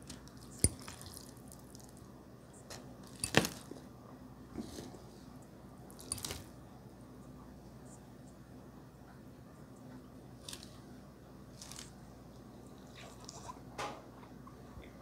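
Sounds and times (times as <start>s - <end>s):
faint steady hum: 0.0s - 15.0s
chewing noodles: 0.1s - 2.0s, 12.8s - 13.6s.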